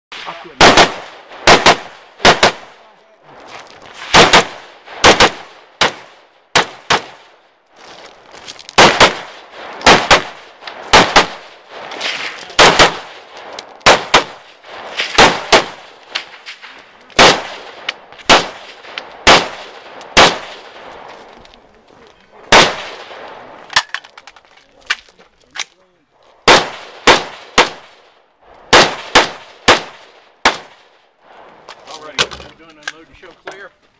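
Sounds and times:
rifle gunshots: 0.1 - 2.8, 3.9 - 7.4, 8.8 - 21.3, 22.4 - 24.0, 26.4 - 28.1, 28.7 - 31.0.

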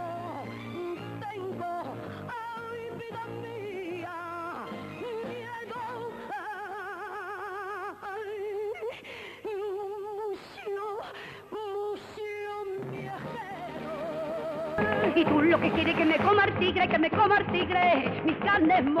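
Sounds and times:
musical accompaniment: 0.0 - 6.6, 12.7 - 19.0
woman singing with vibrato: 0.0 - 19.0.

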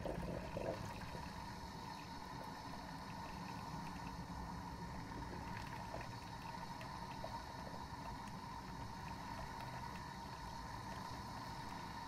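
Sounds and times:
faint ticks: 0.6 - 12.0.

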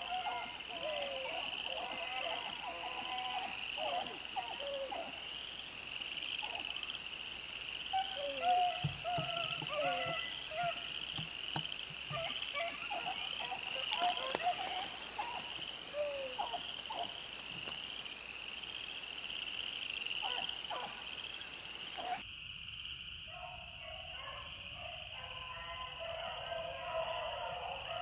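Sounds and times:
frogs trilling in chorus: 0.0 - 28.0.

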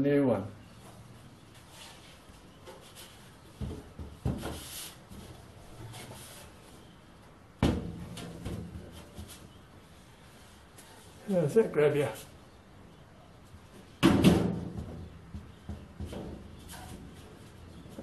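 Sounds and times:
sheet metal knocking and rattling: 7.6 - 9.3, 14.0 - 17.5.

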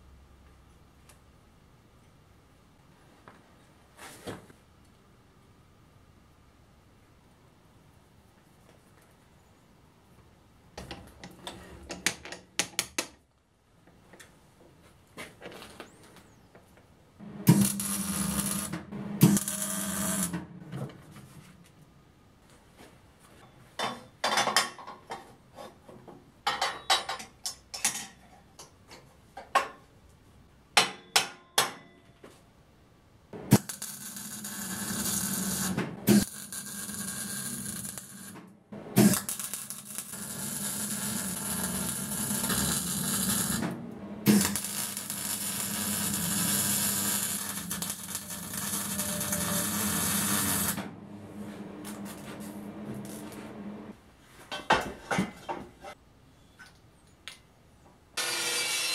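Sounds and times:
welding arc crackling and hissing: 17.4 - 20.4, 33.5 - 38.4, 39.0 - 53.9.

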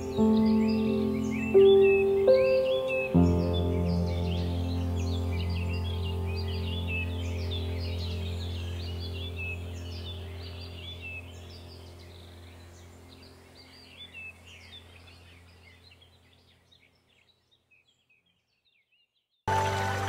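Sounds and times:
music track: 0.0 - 11.6, 19.5 - 20.0
music with sustained drone: 0.0 - 16.0, 19.5 - 20.0
birdsong chirps: 0.0 - 19.5.

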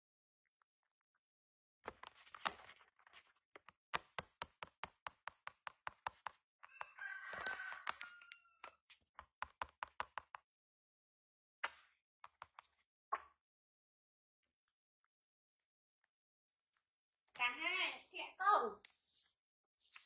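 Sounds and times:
rooster crowing: 6.7 - 8.8.

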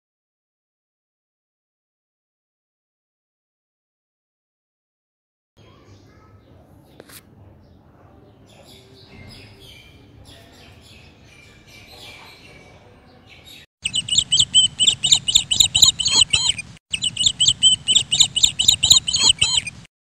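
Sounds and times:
faint bird chirps: 8.5 - 19.9
canary singing loudly: 13.8 - 19.9.

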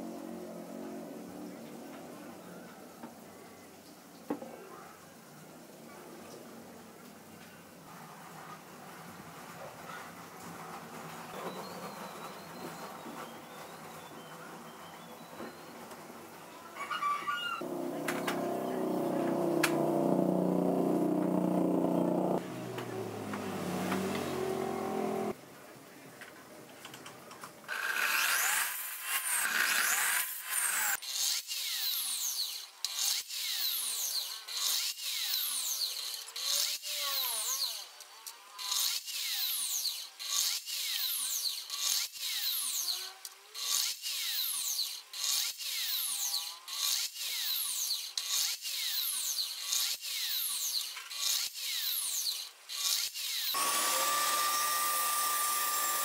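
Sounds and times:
table saw motor whining: 17.3 - 25.4, 27.7 - 37.9, 38.6 - 56.0
miter saw cutting wood: 17.6 - 25.4, 27.7 - 56.0.

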